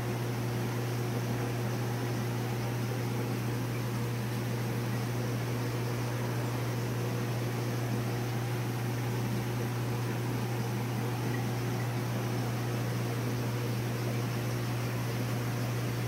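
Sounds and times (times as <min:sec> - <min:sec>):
aquarium pump hiss: 0:00.0 - 0:16.0
electrical hum: 0:00.0 - 0:16.0.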